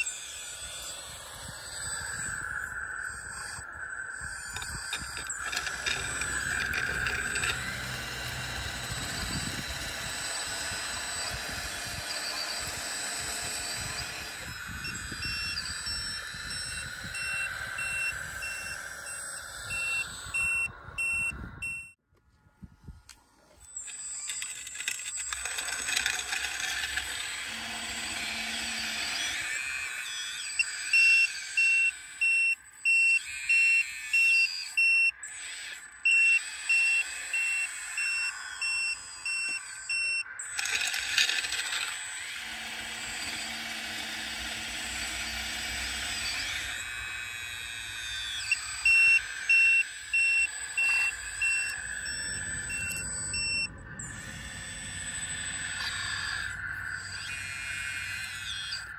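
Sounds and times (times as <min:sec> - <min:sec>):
reversing alarm beeps: 0:00.0 - 0:22.0, 0:23.6 - 0:58.9
toy loader motor whine: 0:00.0 - 0:58.9.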